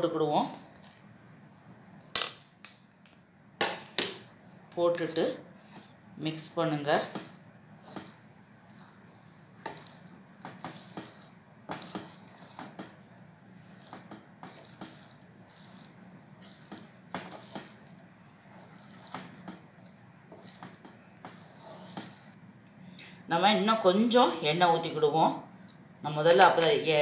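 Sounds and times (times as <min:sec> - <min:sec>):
wooden spatula scraping a pan: 0:06.9 - 0:22.4.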